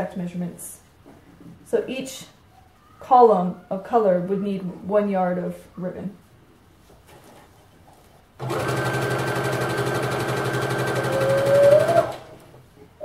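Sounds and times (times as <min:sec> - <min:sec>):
electric sewing machine running: 0:08.4 - 0:12.4.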